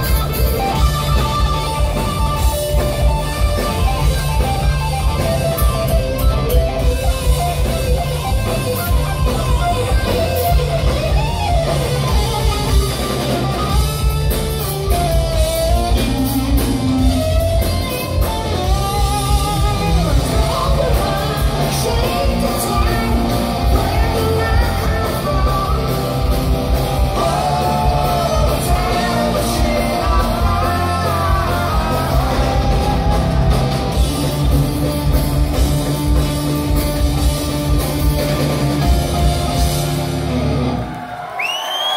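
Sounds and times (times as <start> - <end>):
electric bass: 0.0 - 40.8
distorted electric guitar: 0.0 - 40.9
drum kit: 0.0 - 41.2
person singing: 19.4 - 26.2, 27.1 - 33.5.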